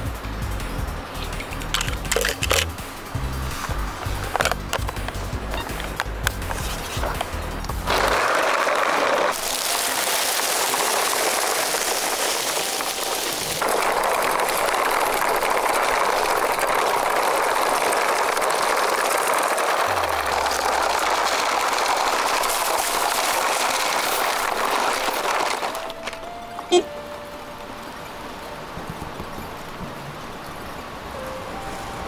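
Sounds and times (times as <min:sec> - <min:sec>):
toy wheels rolling over dry leaves: 0:01.2 - 0:02.7, 0:05.8 - 0:26.6.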